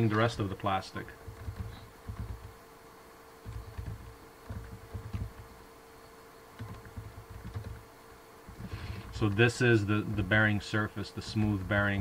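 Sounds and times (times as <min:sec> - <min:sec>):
faint steady hum: 0:00.0 - 0:12.0
typing on computer keyboard: 0:01.3 - 0:02.5, 0:03.4 - 0:05.5, 0:06.6 - 0:07.8.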